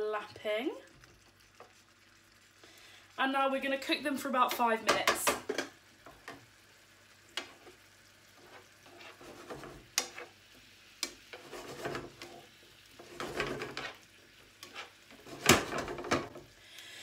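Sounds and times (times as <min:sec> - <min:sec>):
meat sizzling: 0:00.0 - 0:17.0
tongs clicking against frying pan: 0:11.0 - 0:11.2.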